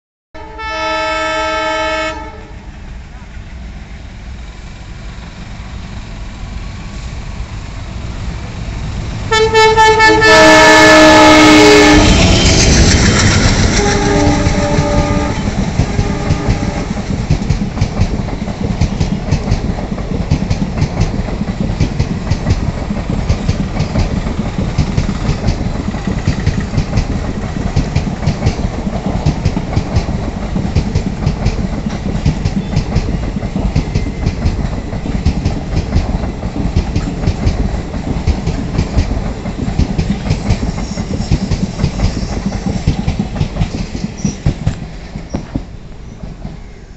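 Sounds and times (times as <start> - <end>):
locomotive horn chord: 0.4 - 2.7, 9.3 - 12.4, 13.8 - 17.0
diesel locomotive engine chugging: 0.9 - 46.9
wheels clattering on rail joints: 12.0 - 46.7.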